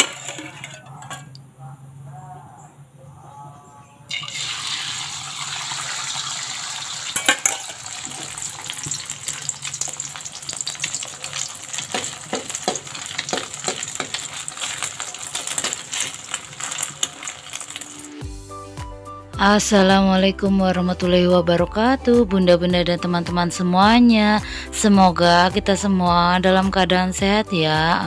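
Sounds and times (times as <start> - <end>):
egg sizzling in hot oil: 4.1 - 18.2.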